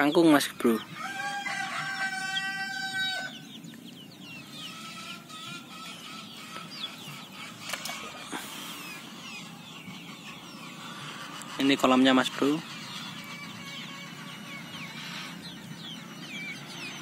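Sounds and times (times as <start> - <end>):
chickens calling: 0.0 - 17.0
small birds chirping: 0.0 - 17.0
rooster crowing: 0.9 - 3.5.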